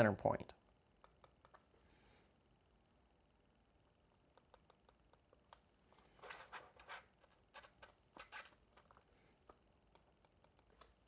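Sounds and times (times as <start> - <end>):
pen scratching on board: 6.2 - 8.6.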